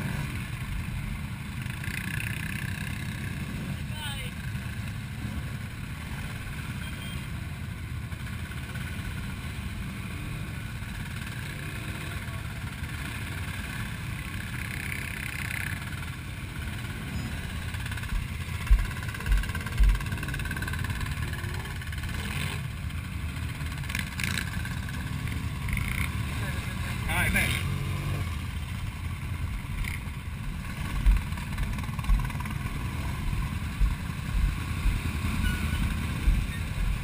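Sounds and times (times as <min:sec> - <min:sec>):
quad bike engines idling: 0:00.0 - 0:37.0
low thumps: 0:18.1 - 0:20.2, 0:30.5 - 0:35.0, 0:36.2 - 0:37.0.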